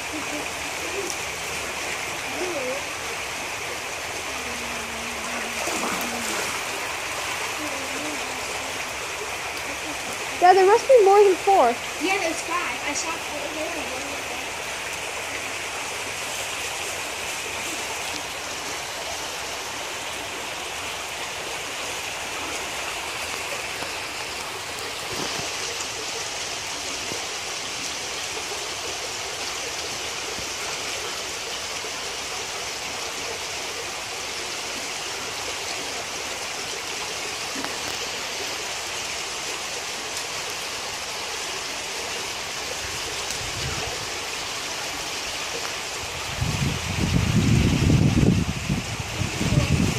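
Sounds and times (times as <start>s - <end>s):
creek water flowing: 0.0s - 49.9s.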